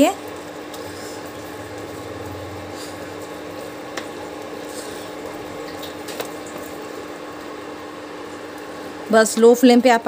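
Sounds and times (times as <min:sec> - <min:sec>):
induction cooktop hum: 0:00.0 - 0:10.0
spoon stirring thick bubbling food: 0:00.3 - 0:07.5.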